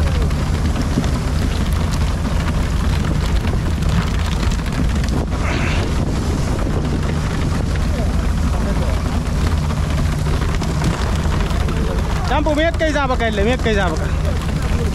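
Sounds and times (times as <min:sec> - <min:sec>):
boat engine droning: 0:00.0 - 0:14.9
wind: 0:00.0 - 0:14.9.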